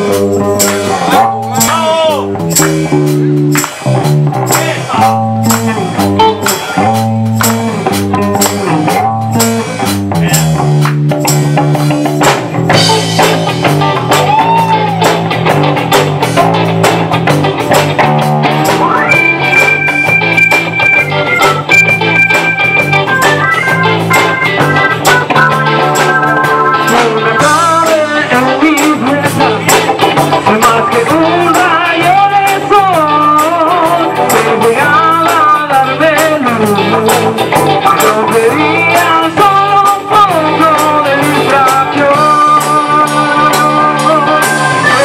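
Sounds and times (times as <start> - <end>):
live rock band playing: 0.0 - 45.0
held high melody line: 18.8 - 27.9.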